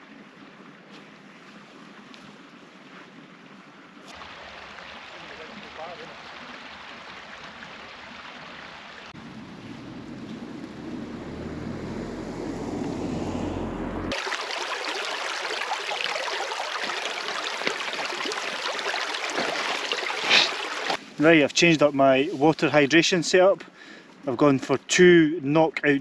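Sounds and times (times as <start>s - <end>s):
stream babbling over stones: 4.1s - 9.2s, 14.1s - 21.8s
low rumble: 9.2s - 14.1s.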